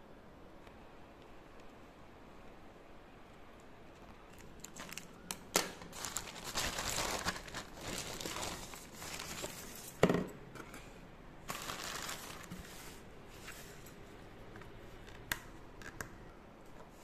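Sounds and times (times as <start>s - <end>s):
plastic packaging crinkling: 4.0s - 10.0s, 11.4s - 13.0s
scissors cutting plastic bag: 4.3s - 9.9s.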